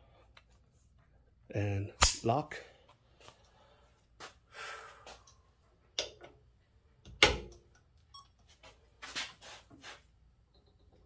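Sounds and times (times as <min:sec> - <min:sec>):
metallic clicks and knocks: 0:06.0 - 0:06.4.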